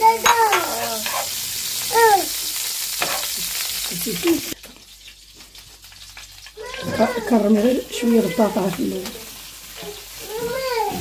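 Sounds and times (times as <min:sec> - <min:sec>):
garlic sizzling in a pan: 0:00.0 - 0:11.0
spoon stirring: 0:00.2 - 0:01.4, 0:03.0 - 0:03.5.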